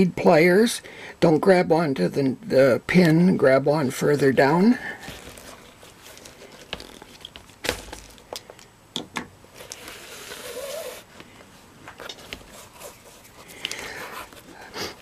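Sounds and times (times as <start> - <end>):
pliers clicking and rustling: 5.1 - 10.0
rubbing hiss: 9.6 - 11.2.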